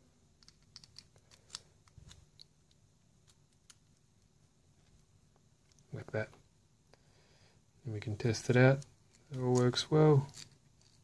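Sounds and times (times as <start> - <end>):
small plastic parts clicking: 0.4 - 5.0.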